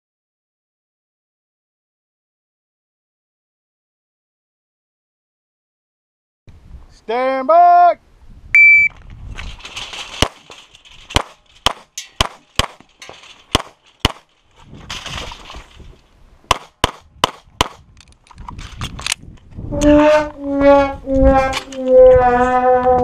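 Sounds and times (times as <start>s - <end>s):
pistol shots: 16.5s - 17.8s.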